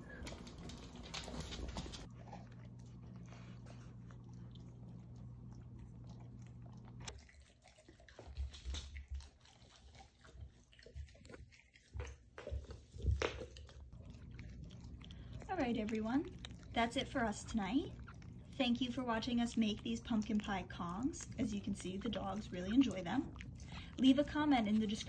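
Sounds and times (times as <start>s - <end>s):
steady low hum: 0.0s - 7.3s, 12.5s - 25.0s
dog gnawing rubber toy: 0.1s - 25.0s.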